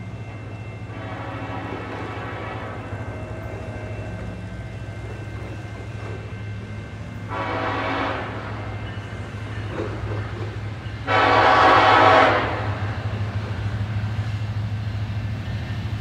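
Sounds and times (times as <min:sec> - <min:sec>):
train rumbling: 0:00.0 - 0:16.0
locomotive air horn blasts: 0:00.9 - 0:04.2, 0:07.2 - 0:08.8, 0:11.0 - 0:13.0.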